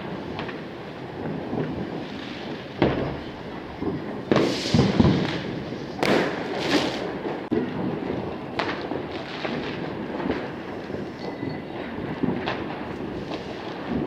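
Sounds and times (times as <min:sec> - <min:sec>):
distant fireworks bangs and crackling: 0:00.0 - 0:14.0
sharp firework bangs: 0:00.0 - 0:14.0.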